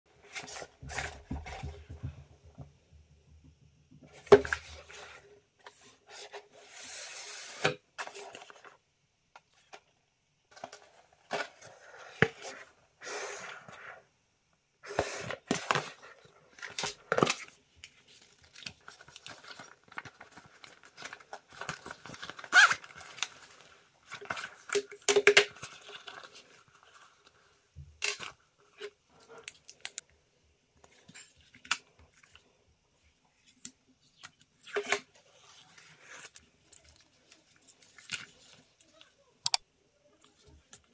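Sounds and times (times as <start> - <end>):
cardboard packaging rustling and tearing: 15.0 - 27.4
plastic clicks and taps: 39.4 - 39.6.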